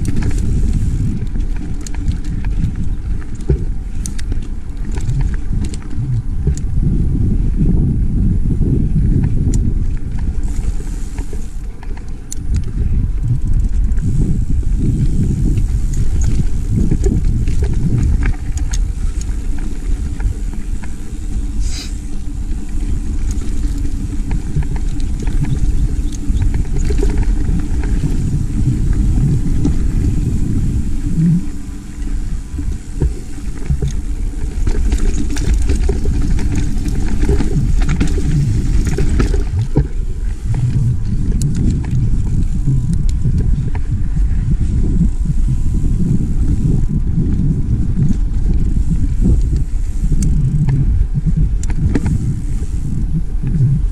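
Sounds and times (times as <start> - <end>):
bike clicks and rattles: 0.0 - 53.9
bike tyres on dirt trail: 0.0 - 53.9
wind buffeting microphone: 0.0 - 53.9.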